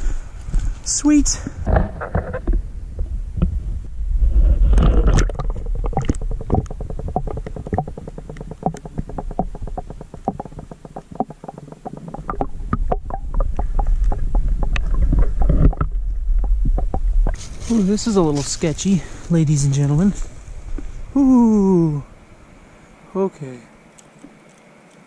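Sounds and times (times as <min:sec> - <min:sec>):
underwater rumble of moving water: 0:01.4 - 0:23.1
underwater clicks and bubbling: 0:04.7 - 0:17.4.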